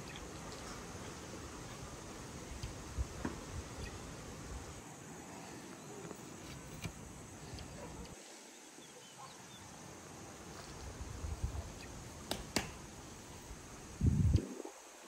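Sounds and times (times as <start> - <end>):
faint bird calls: 0.0 - 2.9, 3.6 - 4.4
low background hiss: 0.0 - 15.0.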